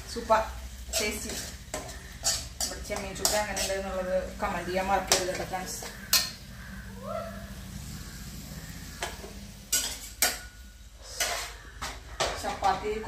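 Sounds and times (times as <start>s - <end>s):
soft sizzle: 0.0s - 13.0s
spoon scraping metal pan: 0.8s - 6.5s, 8.6s - 13.0s.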